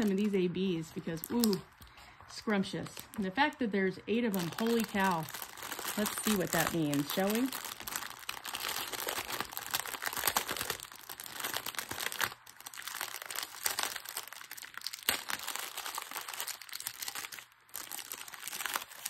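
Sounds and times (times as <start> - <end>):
plastic bags crinkling: 0.0 - 19.0.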